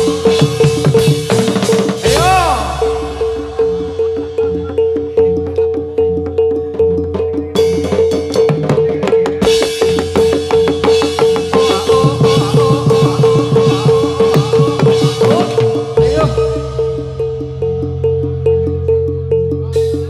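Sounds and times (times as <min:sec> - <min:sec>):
drums: 0:00.0 - 0:20.0
high percussion: 0:00.0 - 0:20.0
wavering melody line: 0:00.0 - 0:20.0
repeating pitched note: 0:01.6 - 0:05.8.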